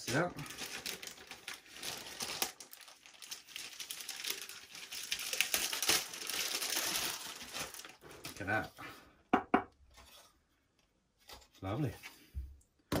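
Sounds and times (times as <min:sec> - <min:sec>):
plastic packaging crinkling: 0:00.0 - 0:08.6.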